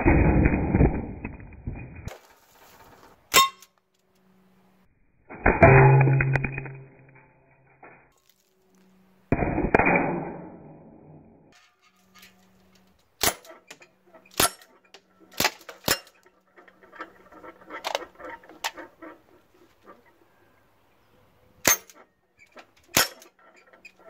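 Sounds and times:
quiet clatter: 1.4s - 4.3s
pellet rifle shots: 13.2s - 16.2s, 22.9s - 23.3s.

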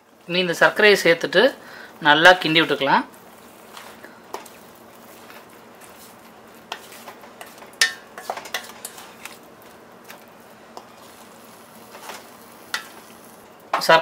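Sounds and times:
spatula stirring thick food: 2.2s - 13.6s
spatula scraping and knocking pan: 3.3s - 14.0s.

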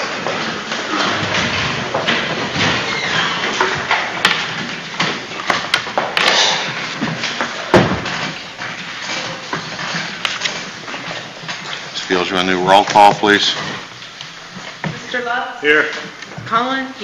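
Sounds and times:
wooden chairs scraping on floor: 0.0s - 16.6s
heavy thump: 7.7s - 8.3s.

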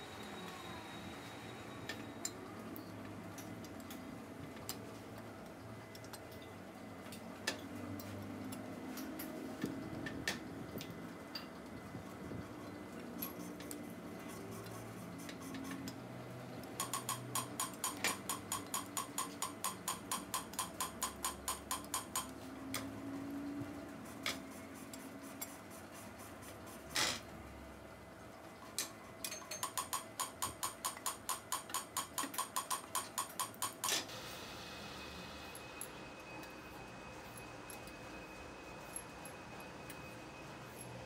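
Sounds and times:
rapid metallic clicking of hand tool: 16.6s - 22.4s, 28.8s - 34.0s.

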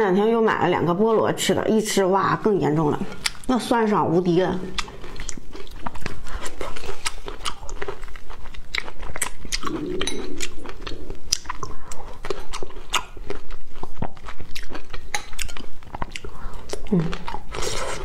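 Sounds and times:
person chewing cherries: 3.1s - 3.6s, 4.6s - 18.0s
person humming: 16.9s - 17.2s.

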